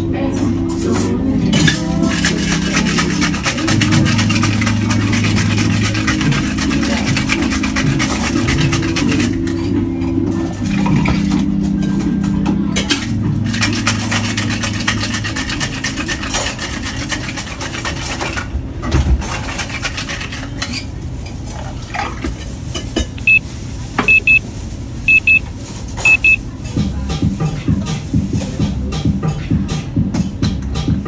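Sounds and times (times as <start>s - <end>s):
short high electronic beeps: 23.2s - 23.4s, 24.1s - 24.4s, 25.1s - 25.4s, 26.1s - 26.4s.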